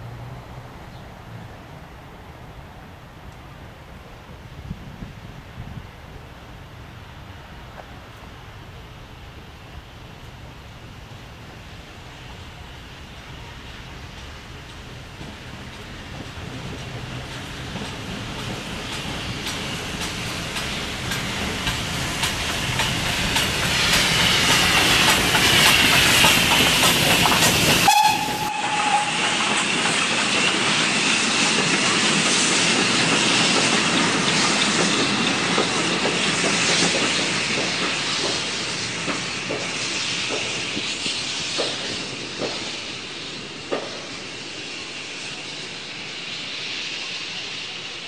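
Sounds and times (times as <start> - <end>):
steam locomotive exhaust and hiss: 0.0 - 48.0
wheels clicking over rail joints: 13.9 - 42.7
steam whistle: 27.8 - 29.6.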